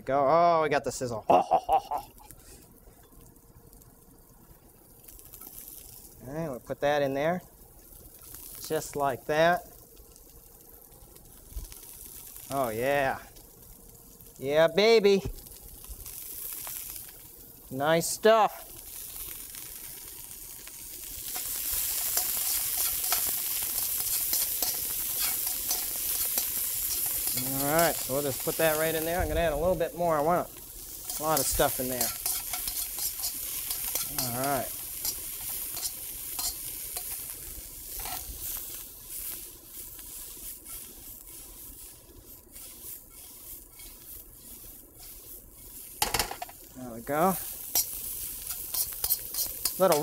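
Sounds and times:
food sizzling in a wok: 0:01.0 - 0:50.0
metal tongs scraping pan: 0:21.3 - 0:29.0, 0:31.0 - 0:37.3, 0:37.9 - 0:38.3, 0:40.6 - 0:41.4, 0:42.6 - 0:44.2, 0:45.0 - 0:46.6, 0:47.5 - 0:50.0.

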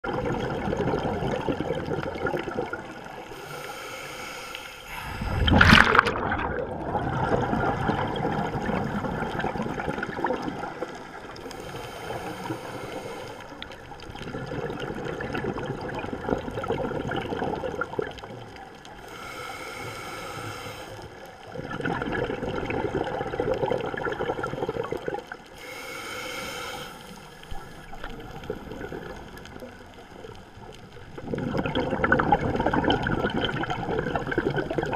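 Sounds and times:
gurgling exhaled bubbles: 0:00.0 - 0:03.4, 0:04.9 - 0:19.1, 0:20.4 - 0:25.6, 0:27.4 - 0:34.9
regulator inhalation hiss: 0:03.3 - 0:05.5, 0:11.4 - 0:13.6, 0:19.0 - 0:21.1, 0:25.6 - 0:28.0.

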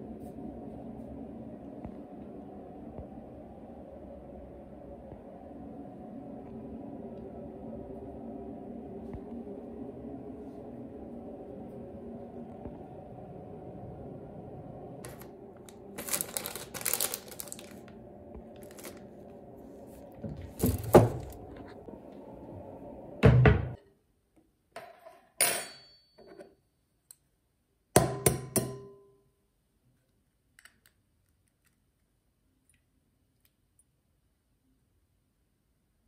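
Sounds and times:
steady low hum: 0:00.0 - 0:23.8.

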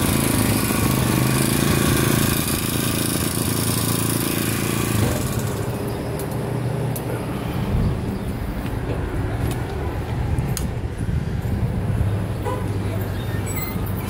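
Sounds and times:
small engine idling: 0:00.0 - 0:06.4.

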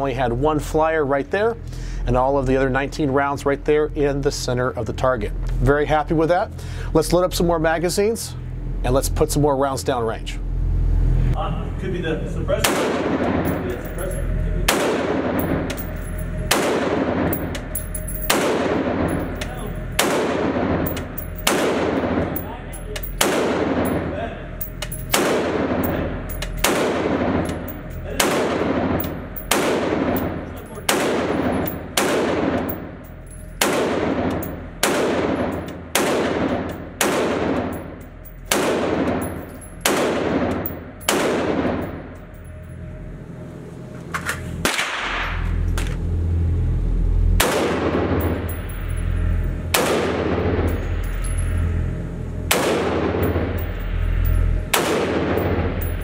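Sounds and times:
rifle shots echoing indoors: 0:12.6 - 0:42.6, 0:44.6 - 0:45.7, 0:47.4 - 0:51.0, 0:52.4 - 0:56.0.

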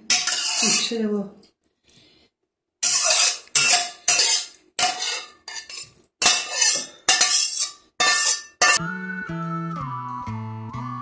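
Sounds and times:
chopsticks clattering on porcelain plate: 0:02.9 - 0:08.8.

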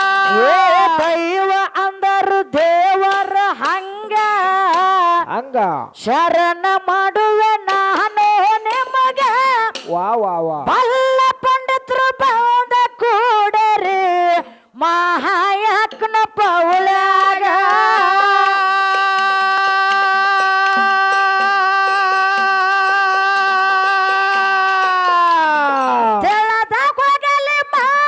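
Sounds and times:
woman singing folk song: 0:00.0 - 0:05.3, 0:06.0 - 0:10.0, 0:10.6 - 0:28.0
small hand cymbals ticking: 0:07.4 - 0:10.2, 0:15.8 - 0:27.3.

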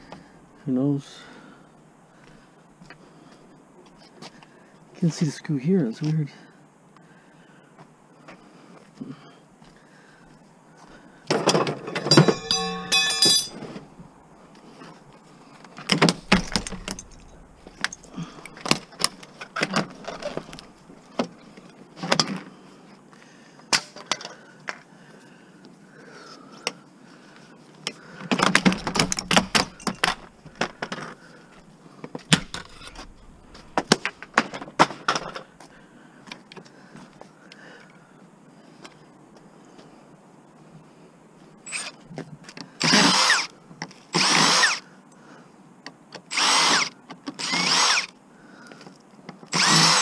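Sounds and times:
plastic and metal parts clattering: 0:11.3 - 0:13.7, 0:15.8 - 0:21.3, 0:28.3 - 0:31.2, 0:32.3 - 0:35.5
cordless drill whirring: 0:42.8 - 0:43.5, 0:44.2 - 0:44.8, 0:46.3 - 0:48.1, 0:49.5 - 0:50.0.

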